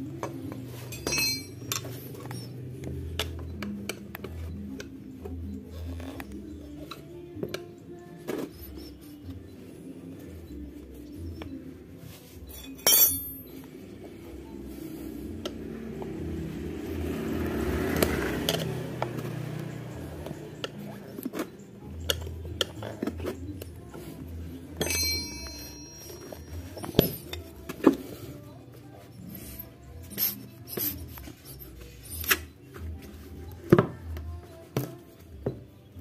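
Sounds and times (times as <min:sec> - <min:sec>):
tyre levers clinking on metal rim: 0:00.2 - 0:04.1, 0:12.4 - 0:13.7, 0:24.7 - 0:28.0, 0:29.0 - 0:32.5.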